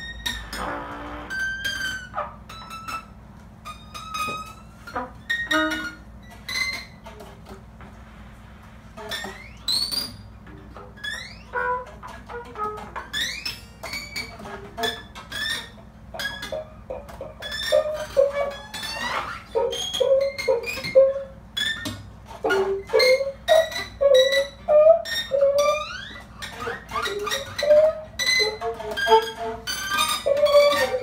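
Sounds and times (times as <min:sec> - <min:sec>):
alto saxophone: 0:00.4 - 0:02.5, 0:04.8 - 0:06.0
trumpet: 0:00.4 - 0:02.6, 0:04.8 - 0:06.0, 0:11.5 - 0:13.1.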